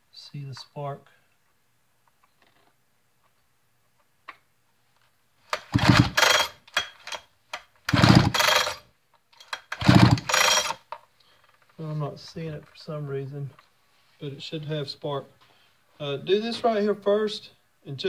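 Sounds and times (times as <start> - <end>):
chainsaw starter rope pulled: 5.5 - 7.2, 7.8 - 10.9
engine spinning over freely: 5.7 - 6.5, 7.9 - 8.7, 9.8 - 10.7.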